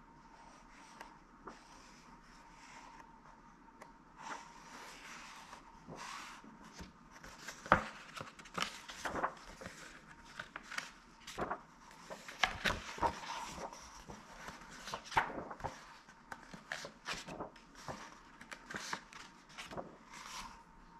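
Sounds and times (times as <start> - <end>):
paper pages turning: 4.2 - 20.7.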